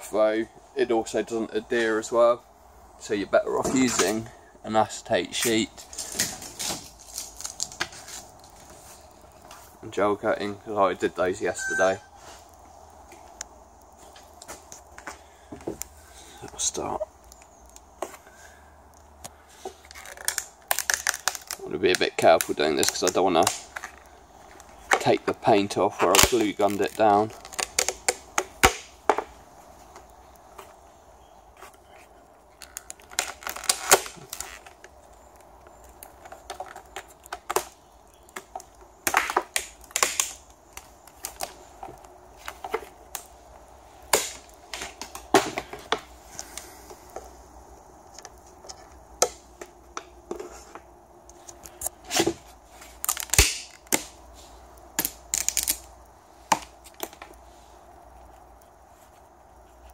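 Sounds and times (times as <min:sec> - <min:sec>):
plastic strips cracking off: 0:05.8 - 0:09.3, 0:18.9 - 0:29.3, 0:31.7 - 0:43.4, 0:44.0 - 0:46.7, 0:51.3 - 0:54.2, 0:54.8 - 0:57.4.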